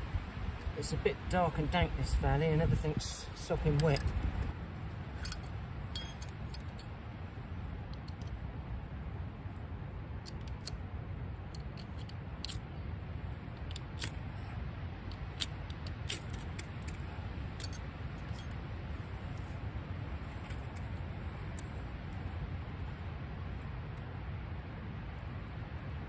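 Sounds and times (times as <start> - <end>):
low rumble of storm wind: 0.0 - 26.0
sharp clicks and scrapes: 11.5 - 12.6, 15.1 - 17.0.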